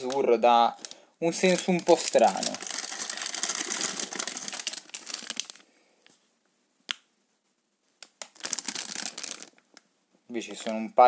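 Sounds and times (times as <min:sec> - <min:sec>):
plastic bags crinkling: 0:00.0 - 0:05.7, 0:08.1 - 0:09.8, 0:10.4 - 0:10.9.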